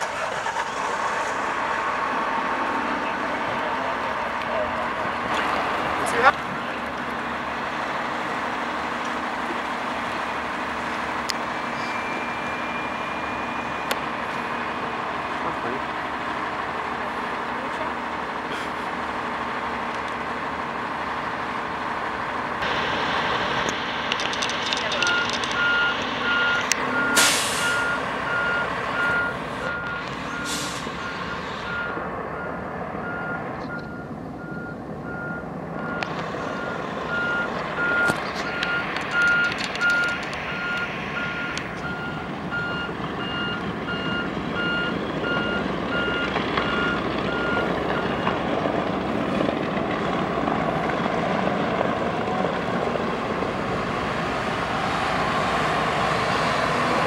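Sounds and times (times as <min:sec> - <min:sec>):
engine running: 0:00.0 - 0:57.0
vehicle reversing alarm beeping: 0:02.7 - 0:05.0, 0:06.0 - 0:07.3, 0:10.8 - 0:15.1, 0:23.2 - 0:48.6.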